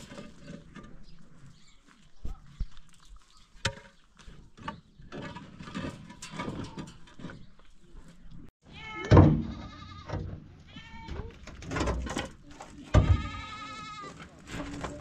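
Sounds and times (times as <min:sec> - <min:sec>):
animal bleating: 0:08.7 - 0:11.4, 0:12.9 - 0:14.2.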